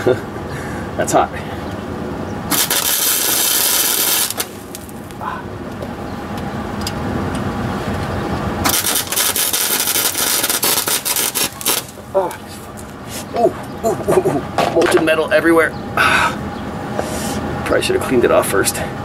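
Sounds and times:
welding arc crackling: 0:02.5 - 0:05.2, 0:08.6 - 0:13.0.

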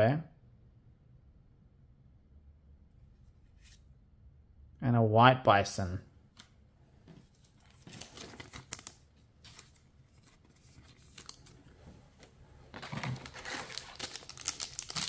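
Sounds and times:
trading cards rustling and clicking: 0:07.1 - 0:15.0
card pack rustling from cardboard box: 0:07.4 - 0:11.6, 0:12.7 - 0:15.0.

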